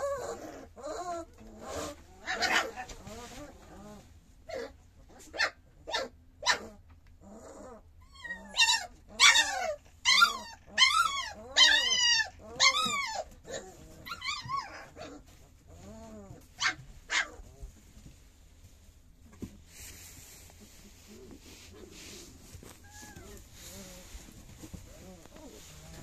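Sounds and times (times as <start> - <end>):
puppy yelps: 0.0 - 2.8, 4.5 - 6.8, 7.6 - 15.2, 16.3 - 17.4, 22.7 - 24.0
puppy whining: 0.0 - 5.3, 5.9 - 17.8, 20.7 - 26.0.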